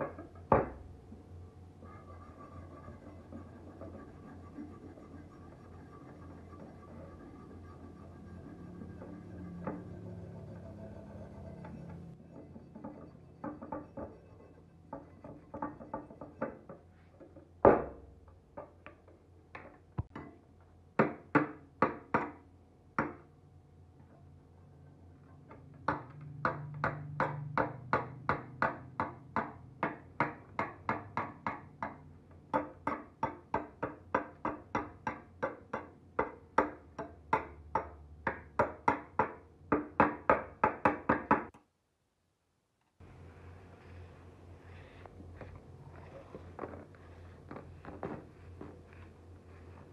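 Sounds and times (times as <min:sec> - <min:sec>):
knock: 0:00.0 - 0:00.8, 0:17.6 - 0:18.0.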